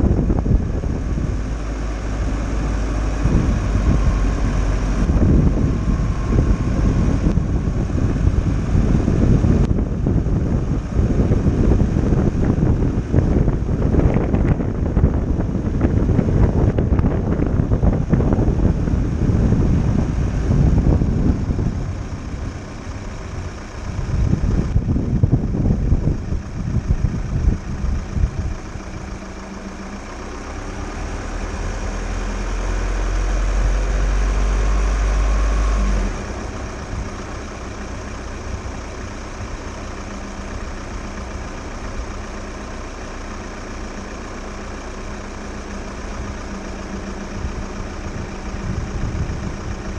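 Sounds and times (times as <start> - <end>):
wind buffeting microphone: 0.0 - 30.3, 46.0 - 49.9
van engine droning: 0.0 - 49.9.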